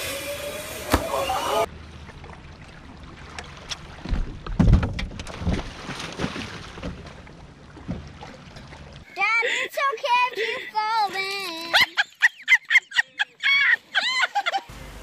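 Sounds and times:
outboard engine hum: 0.0 - 9.2.

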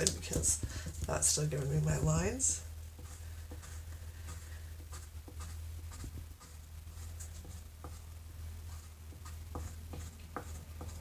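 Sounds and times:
steady low hum: 0.0 - 11.0
brush handle scratching paper: 3.0 - 8.1, 8.7 - 11.0.

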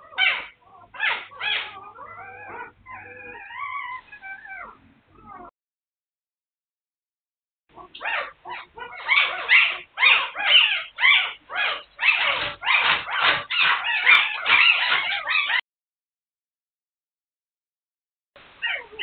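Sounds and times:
puppies whining and squealing: 0.0 - 5.5, 7.7 - 15.6, 18.6 - 19.0.

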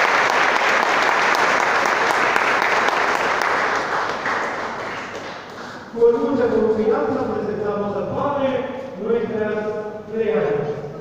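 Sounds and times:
congregation applauding: 0.0 - 5.9.

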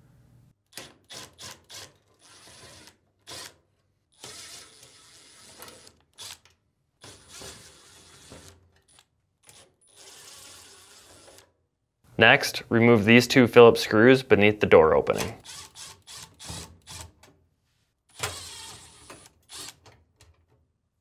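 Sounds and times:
screwdriver turning screws in metal: 4.2 - 11.5, 15.1 - 17.3, 18.1 - 20.4.

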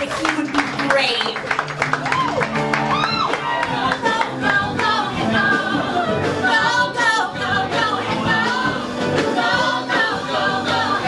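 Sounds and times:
group singing in harmony: 3.4 - 11.0.

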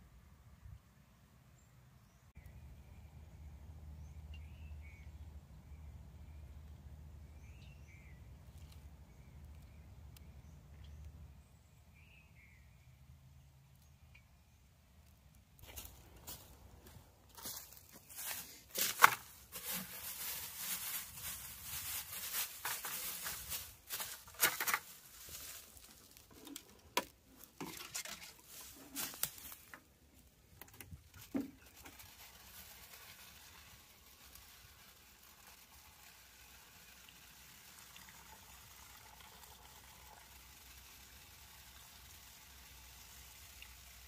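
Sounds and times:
rustling in dry leaves: 15.6 - 38.3
plastic jug crinkling: 15.6 - 38.6
sap trickling into bucket: 17.3 - 29.9, 30.5 - 44.0
plastic bucket set down: 26.4 - 29.2.

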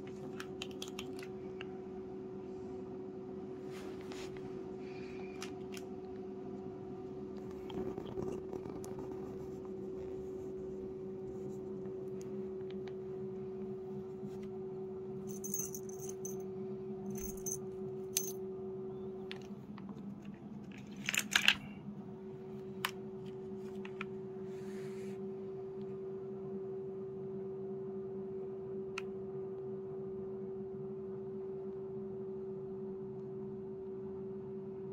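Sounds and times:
steady low hum: 0.0 - 34.9
cat toy jingles: 15.3 - 16.4.

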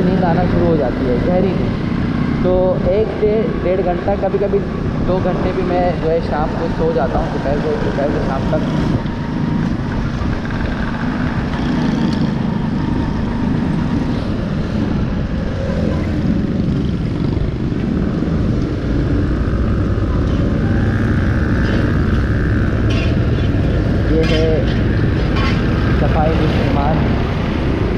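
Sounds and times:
city traffic rumble: 0.0 - 27.9
motorcycle engine running: 7.3 - 27.9.

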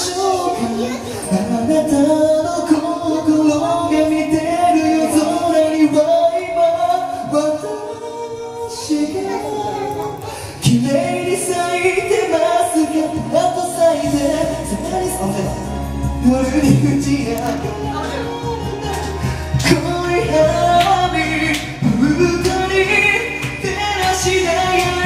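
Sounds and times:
karaoke backing track: 0.0 - 25.0
man singing karaoke: 0.0 - 25.0.

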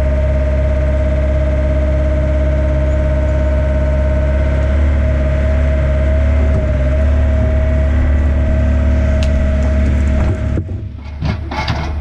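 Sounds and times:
excavator diesel engine running: 0.0 - 12.0
excavator bucket digging soil: 6.2 - 12.0.

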